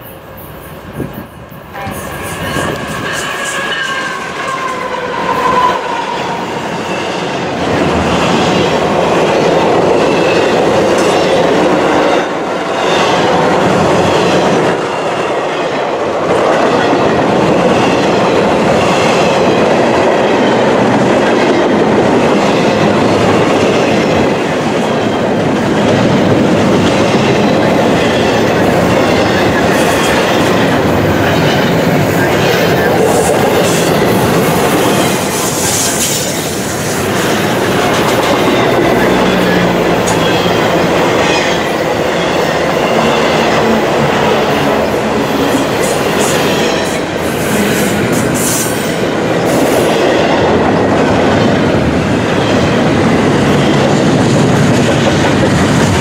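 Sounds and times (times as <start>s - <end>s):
freight train rolling rumble: 0.0s - 56.0s
wheels clacking over rail joints: 20.2s - 48.6s.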